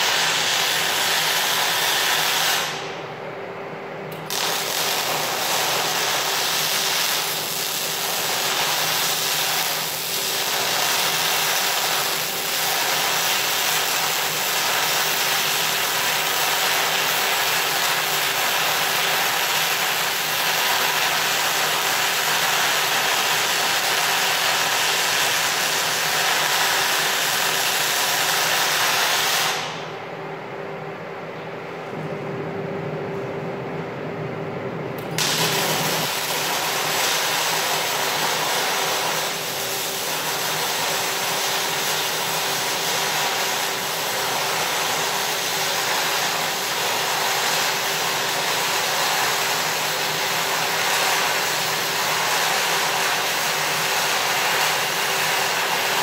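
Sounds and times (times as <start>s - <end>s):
welding arc crackling and hissing: 0.0s - 3.0s, 4.2s - 29.9s, 35.1s - 56.0s
low steady hum: 29.9s - 36.0s.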